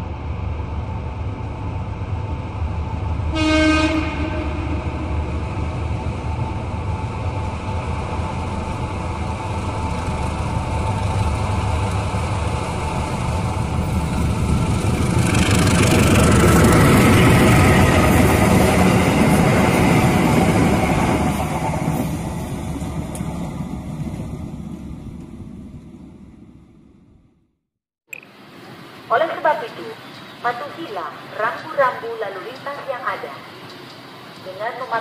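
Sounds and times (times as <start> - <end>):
diesel locomotive engine: 0.0 - 27.3, 28.6 - 35.0
wheels hissing on rails: 5.5 - 23.4.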